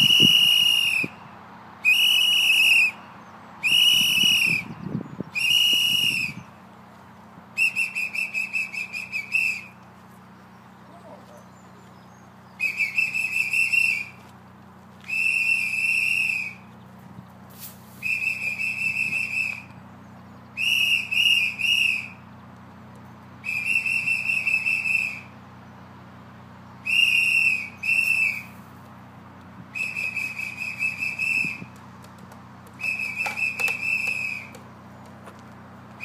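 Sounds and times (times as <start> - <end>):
trilling whistle blasts: 0.0 - 6.5, 7.6 - 9.8, 12.5 - 14.2, 15.0 - 16.7, 18.0 - 19.8, 20.6 - 22.2, 23.4 - 25.4, 26.8 - 28.6, 29.7 - 31.7, 32.8 - 34.6.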